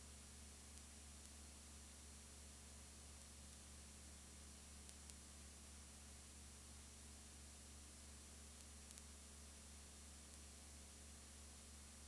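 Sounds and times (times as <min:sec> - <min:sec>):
low electrical hum and hiss: 0:00.0 - 0:12.0
faint clicks: 0:00.7 - 0:01.4, 0:04.8 - 0:05.2, 0:08.6 - 0:09.2, 0:10.2 - 0:10.5.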